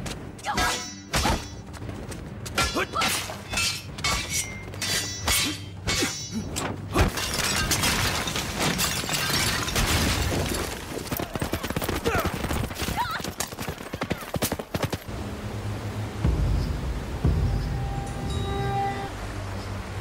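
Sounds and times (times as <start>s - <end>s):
galloping horse hooves: 1.6s - 2.7s, 10.2s - 15.1s
crashing and shattering: 7.0s - 13.6s.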